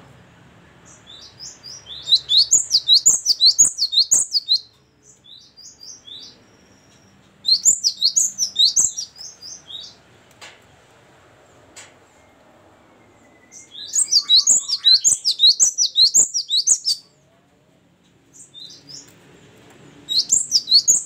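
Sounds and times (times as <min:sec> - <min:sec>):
soft bird calls: 0:00.8 - 0:10.0, 0:12.1 - 0:17.2, 0:20.0 - 0:21.0
tit singing whistled notes: 0:00.9 - 0:04.7, 0:05.3 - 0:10.0, 0:13.1 - 0:17.0, 0:20.1 - 0:21.0.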